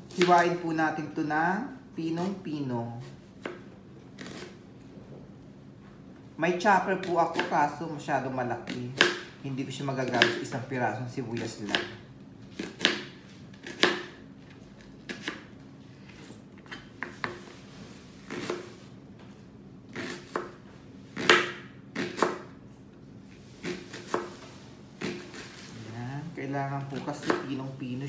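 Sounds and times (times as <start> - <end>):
knife chopping on cutting board: 3.4 - 4.6, 7.0 - 7.6, 8.6 - 9.4, 10.0 - 10.5, 11.3 - 14.2, 14.8 - 15.5, 16.2 - 17.5, 18.2 - 18.8, 19.9 - 22.6, 23.6 - 25.7, 26.8 - 27.7.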